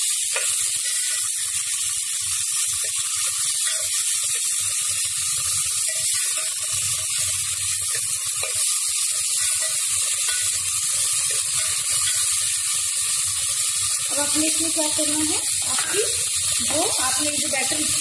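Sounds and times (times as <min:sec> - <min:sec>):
vegetables sizzling in oil: 0:00.0 - 0:18.0
metal spoon scraping a pot: 0:09.4 - 0:12.6.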